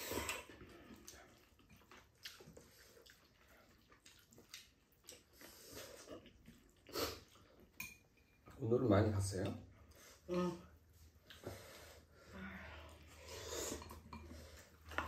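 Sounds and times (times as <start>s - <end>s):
noodle slurping and chewing: 0.0s - 7.8s, 12.8s - 15.0s.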